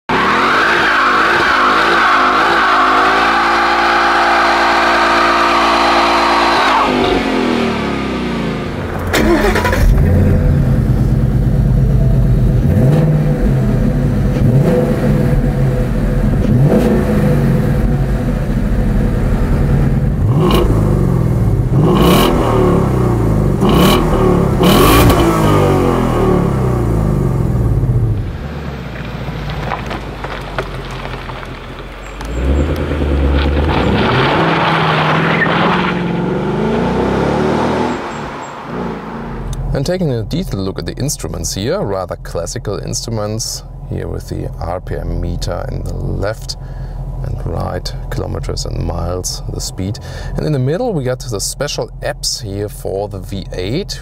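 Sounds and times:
car engine revving high: 0.1 - 28.7, 32.2 - 39.9
car engine idling with throttle blips: 1.0 - 29.8, 36.0 - 54.0.

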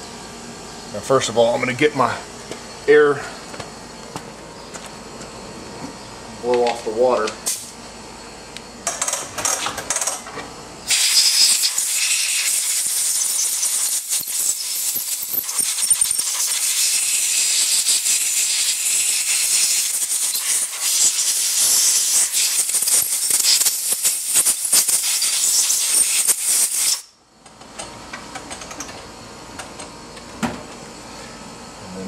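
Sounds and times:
air blow gun hissing: 10.9 - 27.1.

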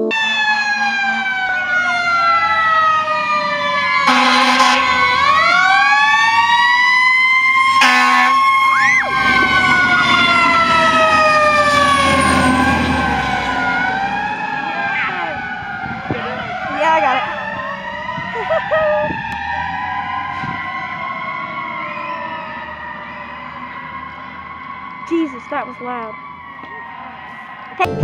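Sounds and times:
fire engine sirens wailing: 0.0 - 28.0
low truck engine rumble: 0.0 - 28.0
short horn blasts: 4.1 - 5.0, 7.8 - 8.4.

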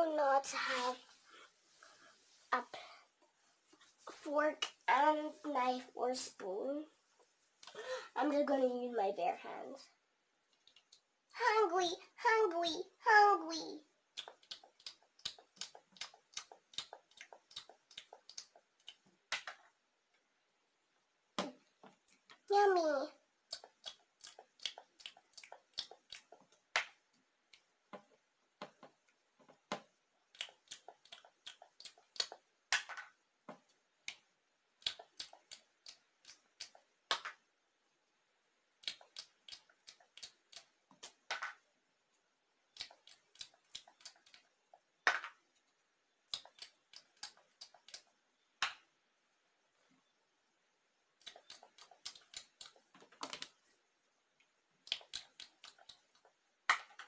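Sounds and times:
faint clicks and taps on plastic: 23.4 - 37.4.

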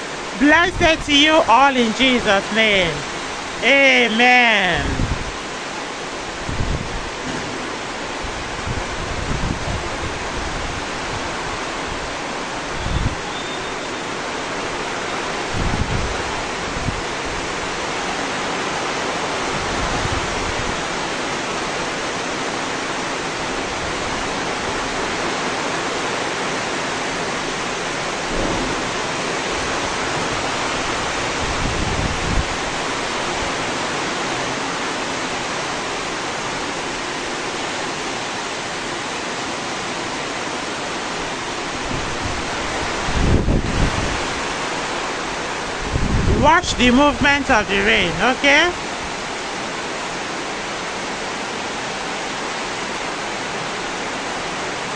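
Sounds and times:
heavy rain pouring: 0.0 - 54.9
wind buffeting microphone: 4.9 - 5.4, 6.3 - 13.3, 15.4 - 17.7, 28.2 - 33.6, 41.7 - 46.4.

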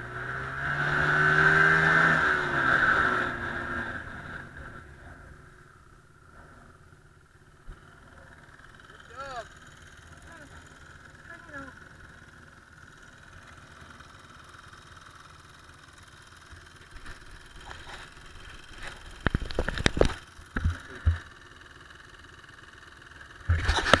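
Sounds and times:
dirt bike engines idling: 0.0 - 24.0
knocks and rubbing on camera: 18.9 - 21.3
camera handling noise: 19.1 - 21.2.

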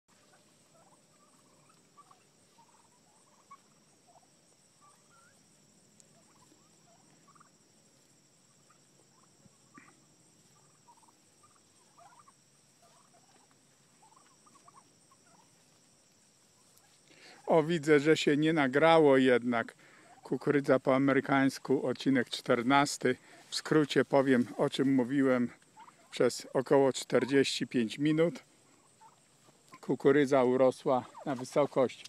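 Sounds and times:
soft chirps: 0.1 - 18.7, 19.4 - 32.0
steady high-pitched tone: 0.1 - 29.2.

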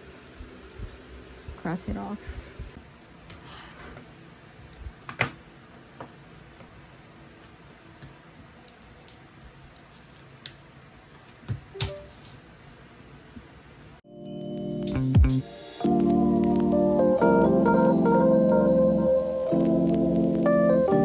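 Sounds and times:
faint room hum: 0.0 - 14.2.

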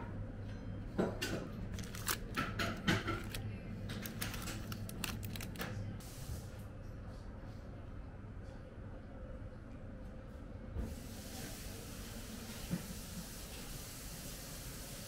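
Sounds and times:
plastic sleeves crinkling: 1.7 - 5.8.

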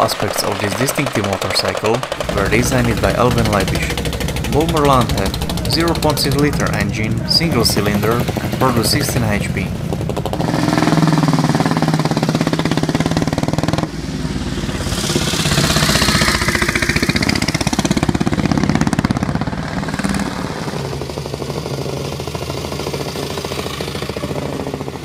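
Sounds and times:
motorcycle engines running: 0.0 - 25.0.

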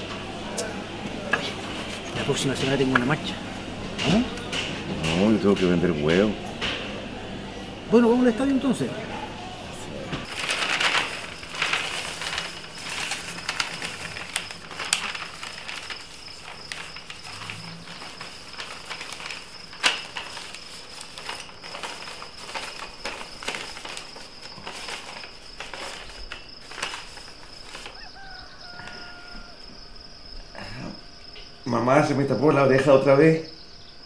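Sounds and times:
insects chirping: 9.7 - 34.0.

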